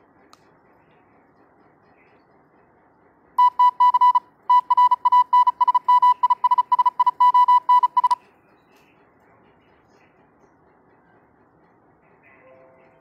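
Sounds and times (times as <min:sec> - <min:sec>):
morse code beeps: 0:03.4 - 0:08.2.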